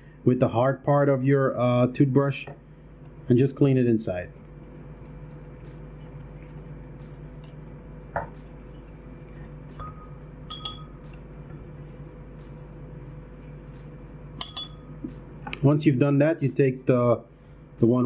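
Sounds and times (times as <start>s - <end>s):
toothbrush scratching plastic: 4.1s - 9.6s, 11.1s - 14.2s
sharp clink: 9.8s - 11.0s, 14.4s - 14.8s.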